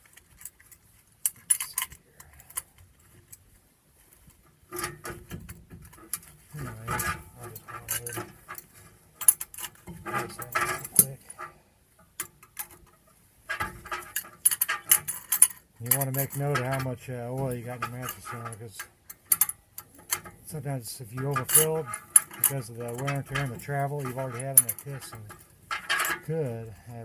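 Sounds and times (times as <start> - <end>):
metal tool parts clinking: 0.0 - 2.7, 6.1 - 11.5, 13.5 - 20.4, 21.0 - 26.9.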